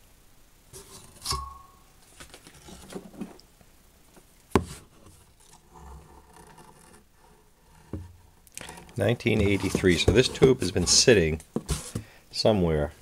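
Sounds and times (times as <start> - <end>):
handling taps and rustles: 0.8 - 6.8, 7.9 - 12.1.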